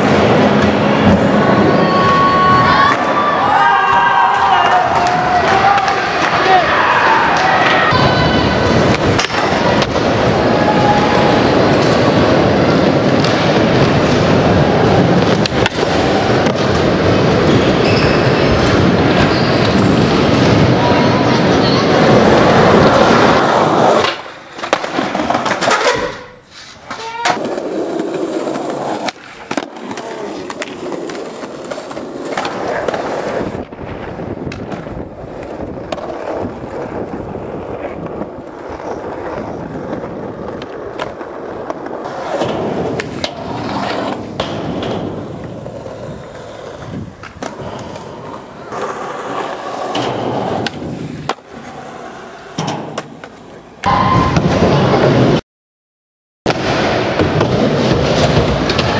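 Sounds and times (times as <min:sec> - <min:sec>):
skateboard wheels rolling on concrete: 0:00.0 - 0:55.4, 0:56.5 - 0:58.9
skateboard clacks: 0:26.9 - 0:53.9.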